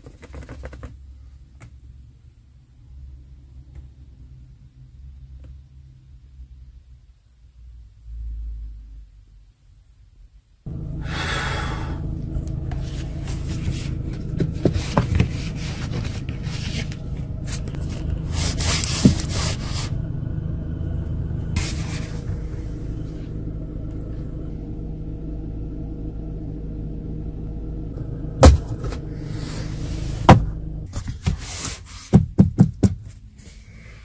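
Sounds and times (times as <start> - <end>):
steady low rumble: 10.6 - 31.3
phone rubbing and scraping: 12.7 - 20.0.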